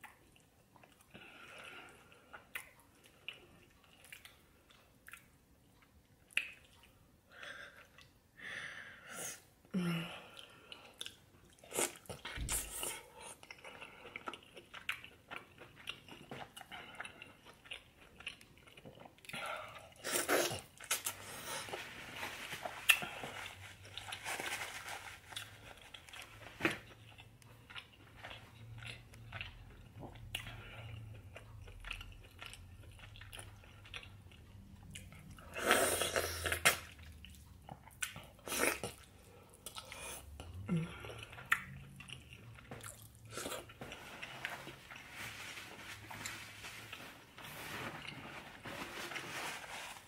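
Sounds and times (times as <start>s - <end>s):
person chewing food: 0.0s - 7.1s, 10.3s - 48.4s.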